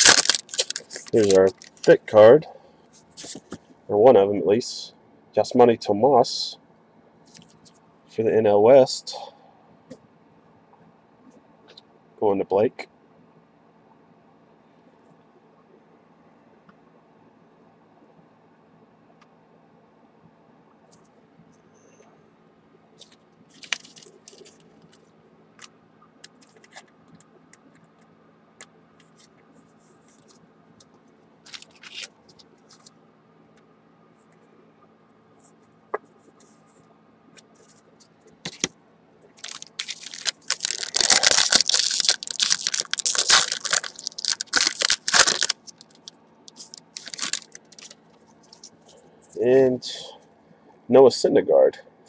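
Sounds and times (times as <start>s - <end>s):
foil card pack tearing open: 0.0s - 2.0s, 23.5s - 24.6s, 31.5s - 32.9s, 39.4s - 48.0s.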